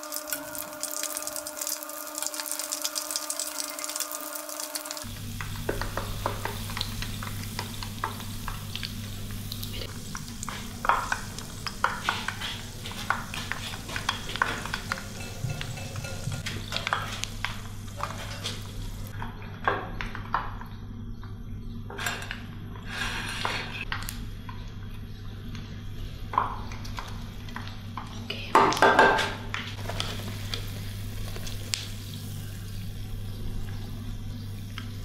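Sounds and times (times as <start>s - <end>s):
donuts sizzling in hot oil: 0.0s - 19.2s, 29.8s - 35.0s.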